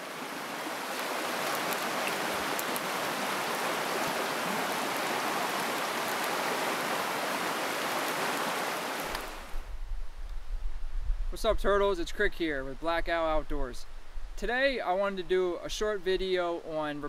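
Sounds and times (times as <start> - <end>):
stream rushing over rocks: 0.0 - 9.6.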